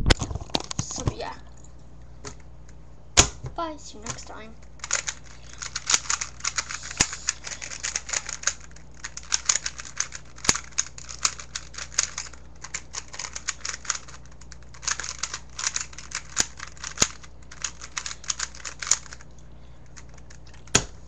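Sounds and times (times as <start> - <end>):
puzzle cube plastic clicks: 4.8 - 19.3.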